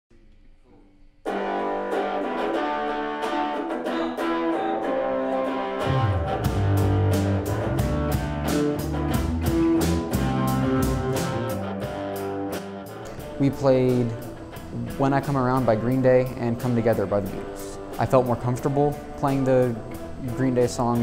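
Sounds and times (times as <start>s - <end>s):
bass guitar notes: 1.3s - 21.0s
electric guitar chords: 1.3s - 21.0s
drums beat: 5.9s - 14.8s.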